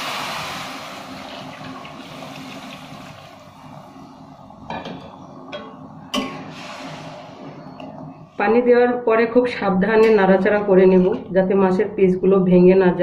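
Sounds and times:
water hissing in hot oil: 0.0 - 4.0.

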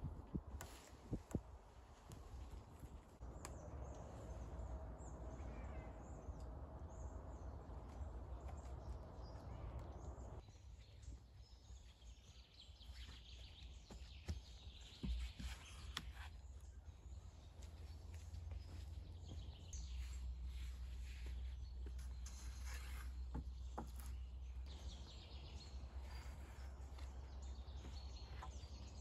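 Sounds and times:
rope rustling on wooden poles: 0.0 - 5.0, 6.3 - 29.0
low wind rumble on microphone: 0.0 - 10.4.

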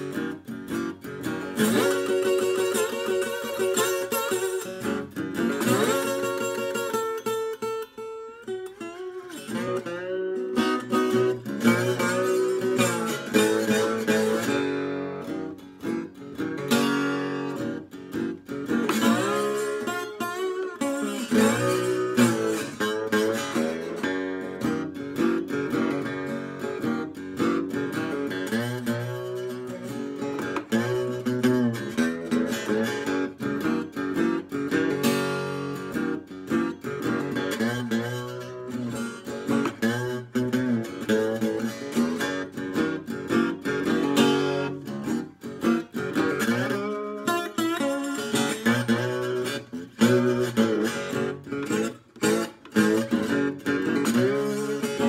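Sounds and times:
slide guitar fingerpicked blues: 0.0 - 55.0.

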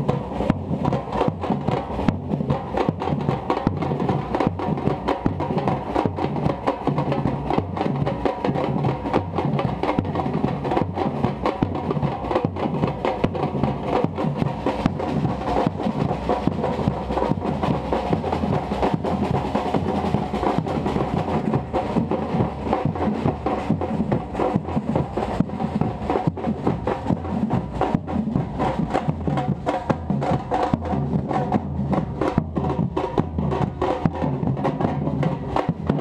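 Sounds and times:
drum ensemble playing: 0.0 - 36.0.

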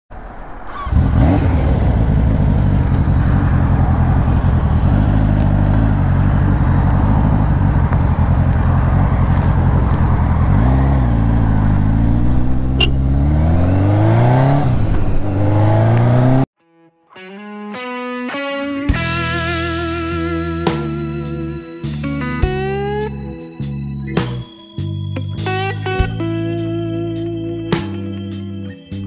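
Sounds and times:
motorcycle engine accelerating: 0.5 - 16.5.

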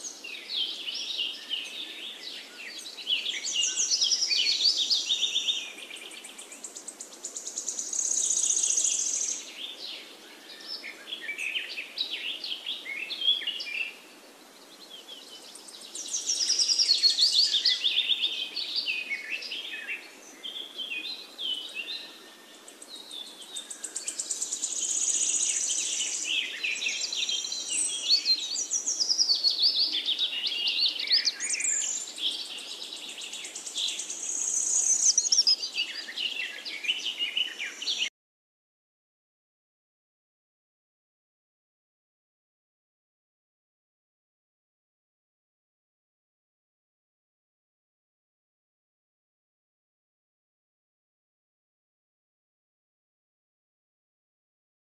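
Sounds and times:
birds chirping and trilling: 0.0 - 38.1.

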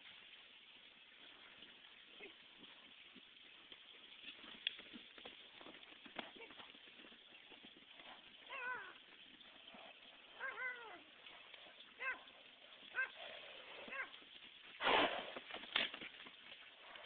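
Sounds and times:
animal crying: 8.5 - 9.0, 10.4 - 11.0, 12.0 - 12.3, 12.9 - 13.2.

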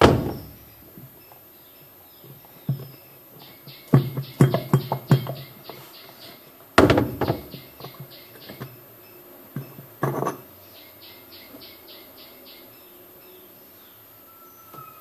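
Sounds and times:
hard plastic knocks and clunks: 0.0 - 0.6, 3.9 - 5.4, 6.8 - 7.6.

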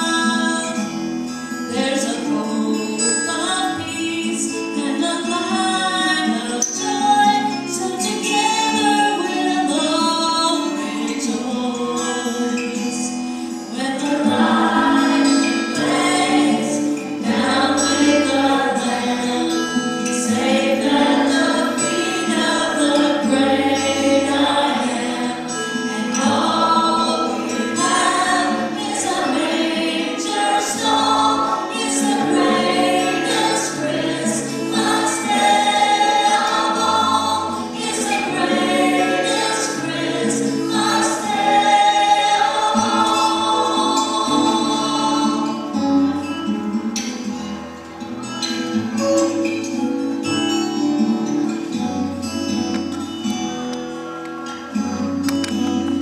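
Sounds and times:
choir singing: 13.7 - 45.9.

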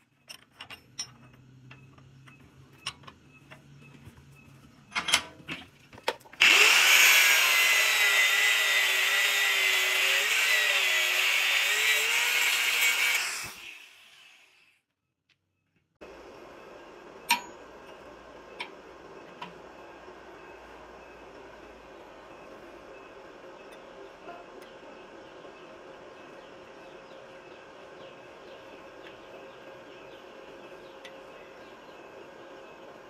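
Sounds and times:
angle grinder grinding steel: 6.4 - 14.7.

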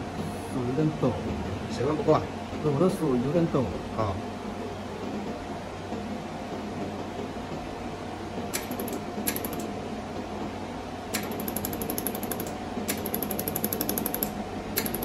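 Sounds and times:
steady machine hum: 0.0 - 15.0
laser welder ticking: 8.5 - 9.7, 11.1 - 15.0.

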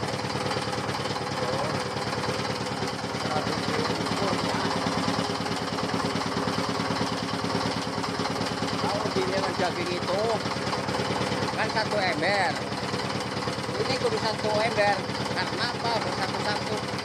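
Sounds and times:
grinding machine engine running: 0.0 - 17.0.

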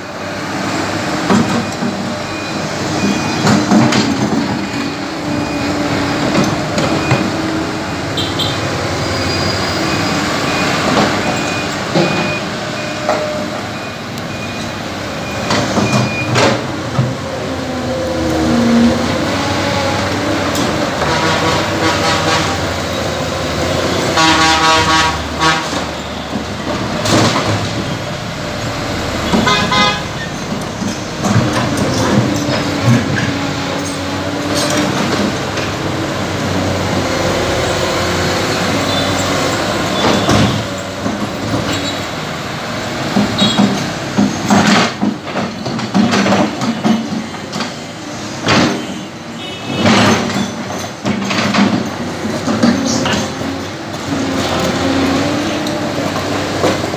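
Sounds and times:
excavator engine and hydraulics: 0.0 - 56.9
vehicle horns honking: 8.2 - 8.7, 21.0 - 22.7, 24.0 - 26.2, 29.3 - 30.3, 48.8 - 50.0.

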